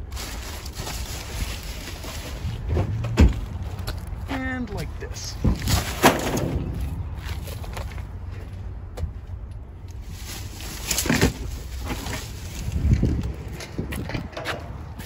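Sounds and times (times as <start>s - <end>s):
plastic trash bags rustling: 0.0s - 4.2s, 10.0s - 13.3s
steady low rumble: 0.0s - 15.0s.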